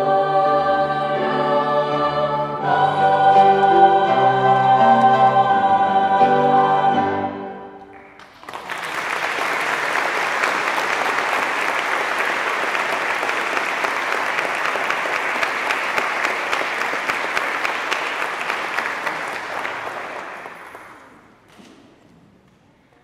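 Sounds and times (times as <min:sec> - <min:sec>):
audience applauding: 0:07.9 - 0:21.2.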